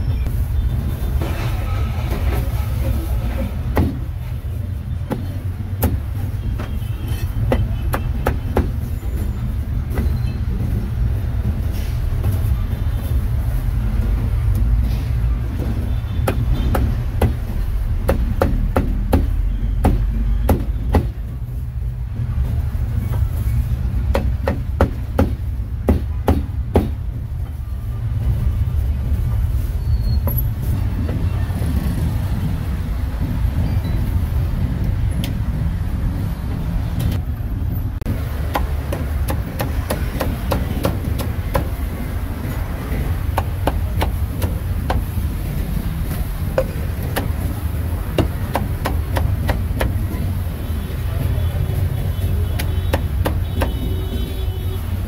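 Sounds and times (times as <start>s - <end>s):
road traffic rumble: 0.0s - 55.0s
cleaver chopping meat: 38.4s - 41.8s, 48.1s - 50.0s.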